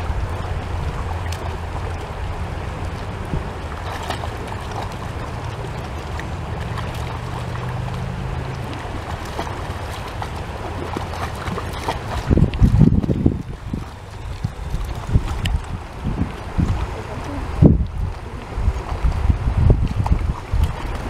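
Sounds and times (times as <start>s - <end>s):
wind rumble on microphone: 0.0s - 21.0s
dog splashing in water: 3.8s - 15.7s.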